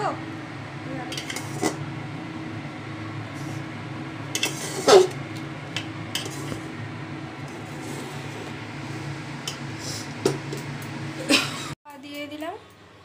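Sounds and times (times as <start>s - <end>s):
steady low hum: 0.0s - 11.8s
metal ladle scraping pot: 4.3s - 5.2s, 6.1s - 6.6s.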